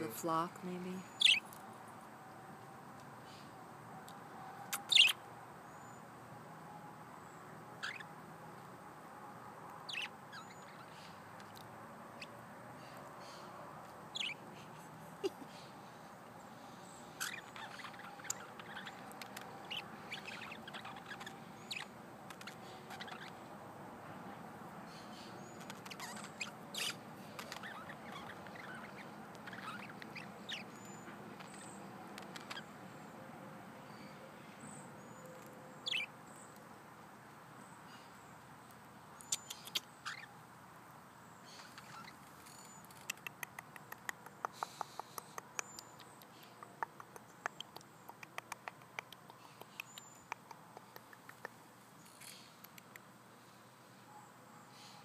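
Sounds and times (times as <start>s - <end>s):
budgerigars chirping: 1.1s - 1.4s, 4.8s - 5.2s, 7.8s - 8.1s, 9.8s - 11.1s, 14.1s - 14.4s, 17.1s - 23.4s, 25.3s - 32.7s, 35.8s - 36.1s, 39.3s - 40.3s, 41.5s - 42.8s.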